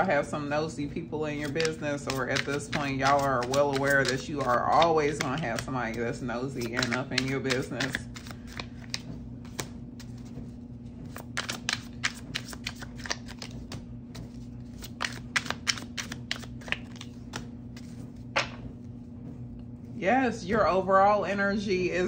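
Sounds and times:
steady low hum: 0.0 - 22.0
cards shuffled and flipped: 1.3 - 18.9.

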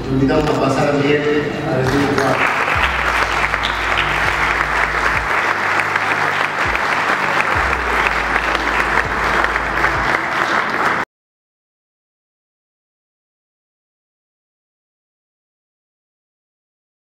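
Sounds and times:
low music: 0.0 - 11.0
audience applauding: 1.8 - 11.1.

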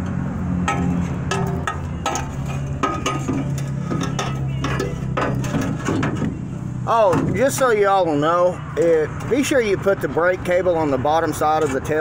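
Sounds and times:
metal clinks and knocks: 0.6 - 7.8.

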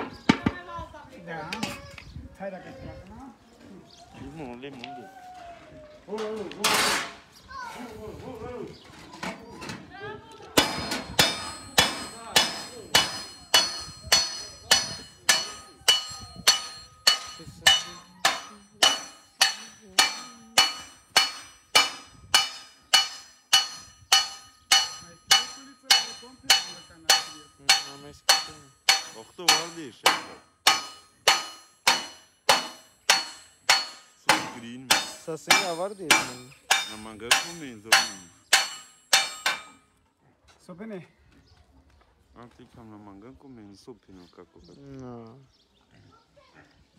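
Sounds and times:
hammer blows on copper sheet: 10.6 - 39.8.

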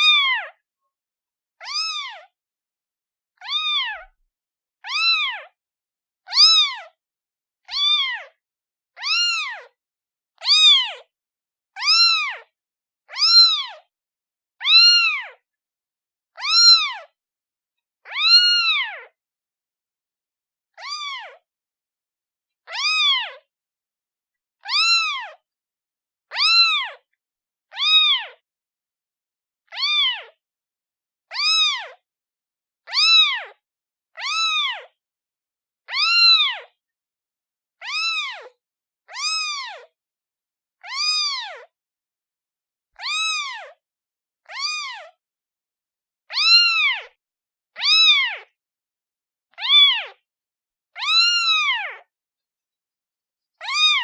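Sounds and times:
kitten meowing: 0.0 - 0.6, 1.6 - 2.3, 3.4 - 4.2, 4.8 - 5.6, 6.3 - 7.0, 7.6 - 8.3, 9.0 - 9.7, 10.4 - 11.0, 11.8 - 12.5, 13.1 - 13.8, 14.6 - 15.4, 16.4 - 17.1, 18.0 - 19.1, 20.8 - 21.4, 22.7 - 23.5, 24.6 - 25.4, 26.3 - 27.0, 27.7 - 28.4, 29.7 - 30.4, 31.3 - 32.0, 32.9 - 33.6, 34.2 - 35.0, 35.8 - 36.7, 37.8 - 39.9, 40.8 - 41.7, 43.0 - 43.8, 44.4 - 45.2, 46.3 - 47.2, 47.8 - 48.5, 49.5 - 50.2, 51.0 - 52.1, 53.6 - 54.0.

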